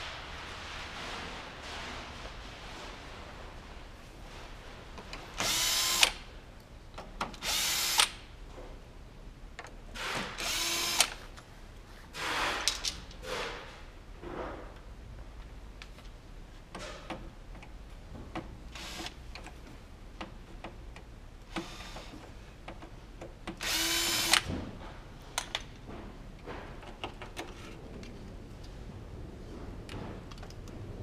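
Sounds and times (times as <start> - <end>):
cordless drill running: 5.4 - 6.2, 7.4 - 8.1, 10.4 - 11.1, 18.8 - 19.2, 23.6 - 24.5
parts clicking and knocking: 12.2 - 28.8, 29.5 - 31.0.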